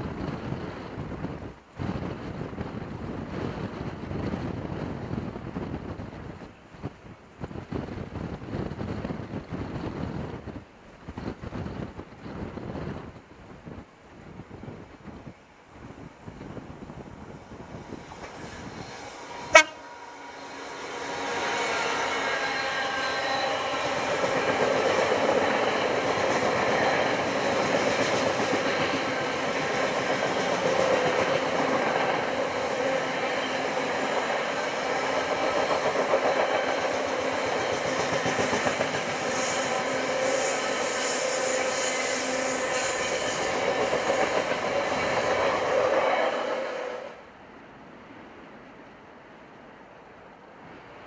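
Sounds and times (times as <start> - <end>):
freight wagons rolling on rails: 21.0 - 45.9.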